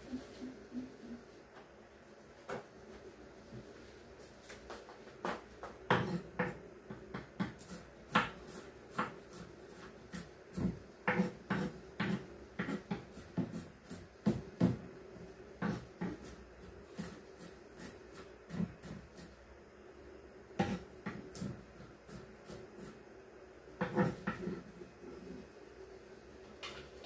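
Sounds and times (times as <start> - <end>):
knife chopping on wooden board: 5.2 - 14.8, 15.6 - 19.3, 20.6 - 23.0.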